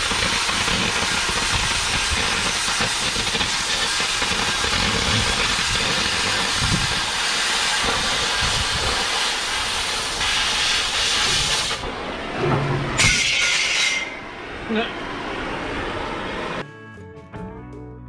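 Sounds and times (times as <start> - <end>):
cutting torch gas hiss: 0.0 - 11.9.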